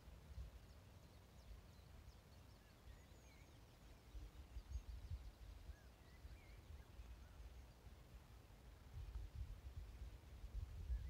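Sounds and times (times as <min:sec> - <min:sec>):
faint birdsong: 0:00.0 - 0:11.0
wind rumble on microphone: 0:04.1 - 0:07.4, 0:08.8 - 0:11.0.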